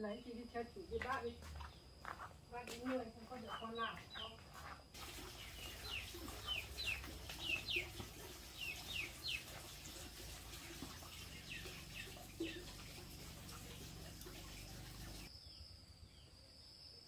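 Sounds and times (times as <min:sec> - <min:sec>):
chicks peeping: 0:05.0 - 0:15.3.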